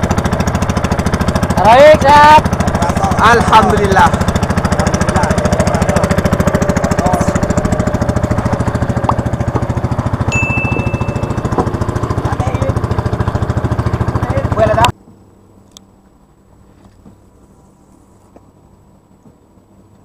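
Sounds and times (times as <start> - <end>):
boat engine chugging: 0.0 - 14.9.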